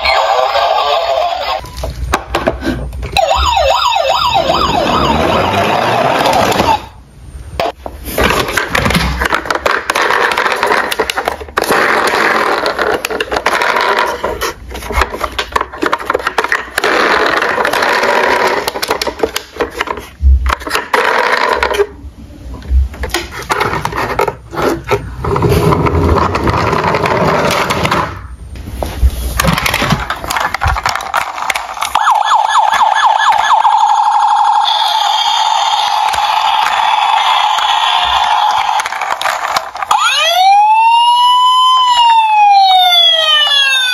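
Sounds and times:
crackly toy siren effects: 3.0 - 7.0, 30.9 - 43.9
warbling electronic siren: 3.1 - 7.0, 31.7 - 39.2, 39.9 - 43.9.

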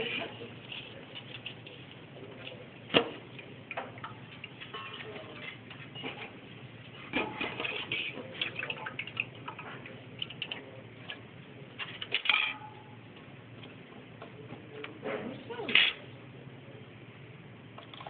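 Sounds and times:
metal spoon clinking in steel bowls: 4.0 - 6.2, 12.0 - 13.0.

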